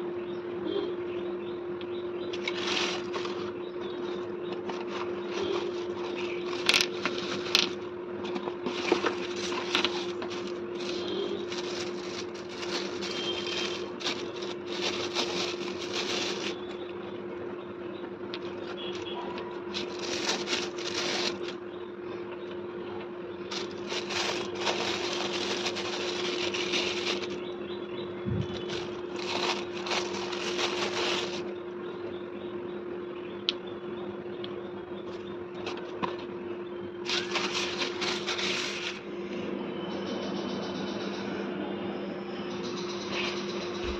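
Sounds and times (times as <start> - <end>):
steady low hum: 0.0 - 43.9
plastic wrapping crinkling: 2.3 - 3.5, 4.6 - 16.8, 18.4 - 21.6, 23.5 - 27.5, 28.4 - 31.5, 37.0 - 39.0.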